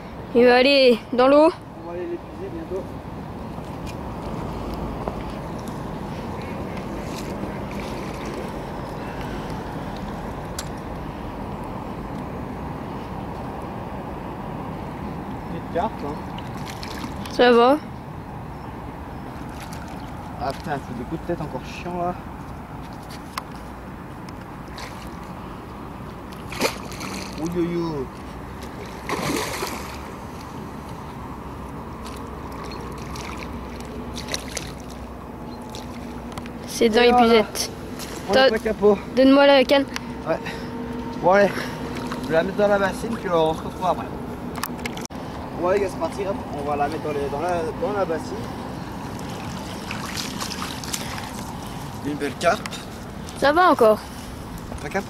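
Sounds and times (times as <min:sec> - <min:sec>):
water lapping and sloshing: 0:02.9 - 0:10.9, 0:16.0 - 0:55.0
fish thrashing splash: 0:16.4 - 0:17.2, 0:26.4 - 0:27.5, 0:28.5 - 0:30.2, 0:32.0 - 0:36.2, 0:49.0 - 0:51.8.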